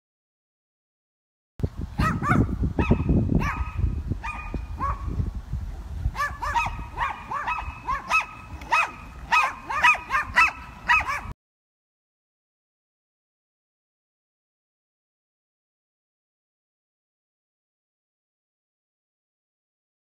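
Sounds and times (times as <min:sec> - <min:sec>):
small dogs yapping: 0:02.0 - 0:05.1, 0:06.2 - 0:11.3.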